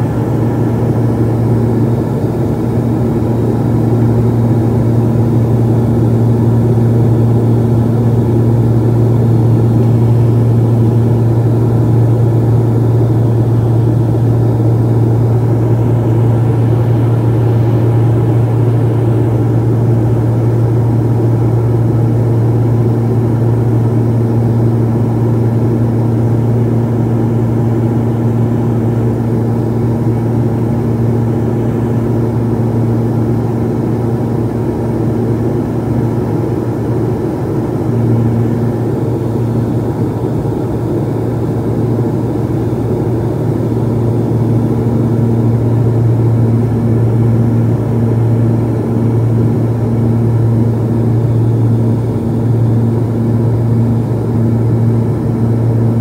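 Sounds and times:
turboprop engine drone: 0:00.0 - 0:56.0.

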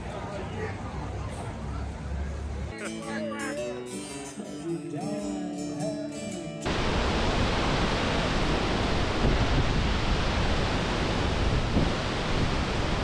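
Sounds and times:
wind and open sea rushing: 0:06.7 - 0:13.0
wind buffeting microphone: 0:06.8 - 0:13.0.

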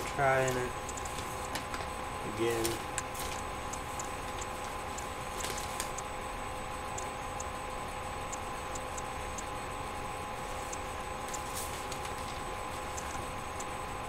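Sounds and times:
sharp clicks: 0:00.0 - 0:06.1, 0:10.7 - 0:13.8
steady hum: 0:00.0 - 0:14.0.

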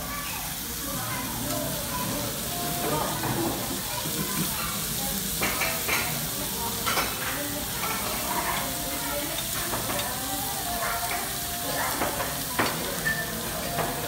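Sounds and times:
meat sizzling on grill: 0:00.0 - 0:14.0
metal tongs clicking on grill: 0:09.2 - 0:10.2.

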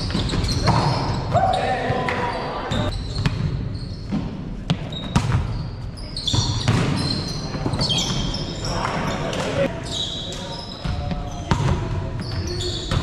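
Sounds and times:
sneakers squeaking: 0:00.0 - 0:13.0
basketball bouncing on gym floor: 0:02.8 - 0:08.2.

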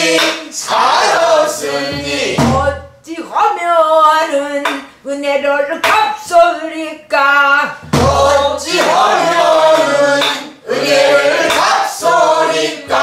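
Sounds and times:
group singing in unison: 0:00.0 - 0:02.8, 0:07.8 - 0:13.0.

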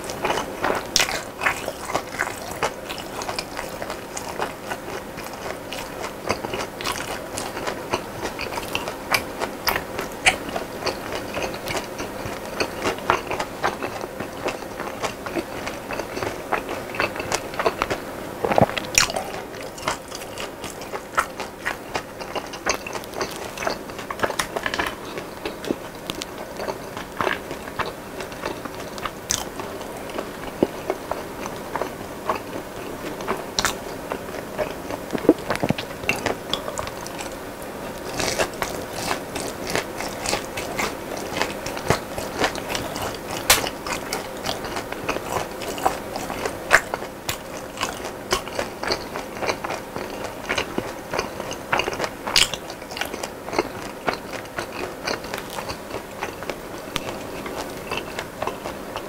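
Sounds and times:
chewing crispy fried chicken: 0:00.0 - 0:59.0
wet mouth sounds: 0:15.9 - 0:28.0, 0:34.6 - 0:37.4.

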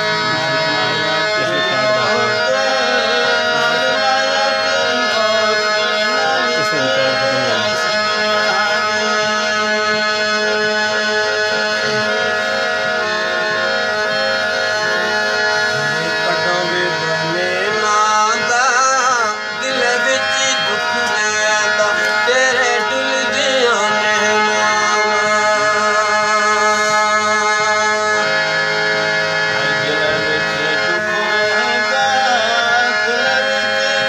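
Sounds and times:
harmonium chords: 0:00.0 - 0:34.0
person singing ornamented phrases: 0:00.3 - 0:09.3.

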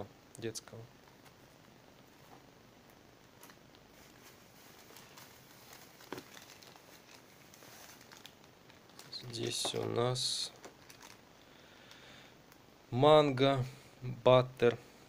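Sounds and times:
plastic bag rustling: 0:03.3 - 0:11.4.

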